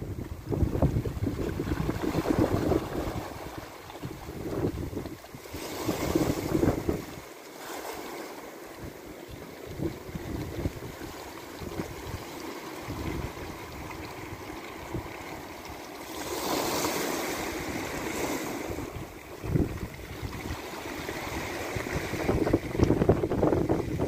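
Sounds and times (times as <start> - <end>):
wind on microphone: 0.0 - 7.2, 8.8 - 24.0
waves washing over stony shore: 0.0 - 24.0.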